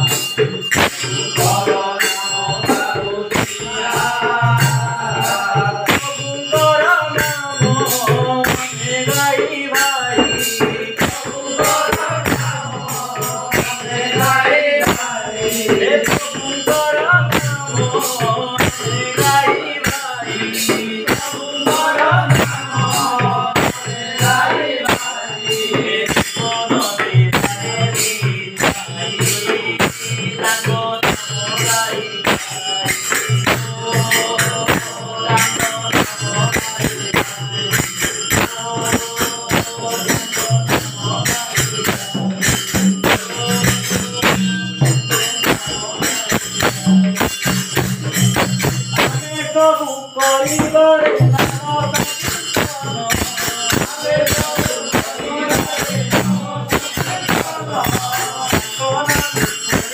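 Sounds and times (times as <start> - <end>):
hand cymbals ringing: 0.0 - 59.9
voices chanting: 53.0 - 59.1.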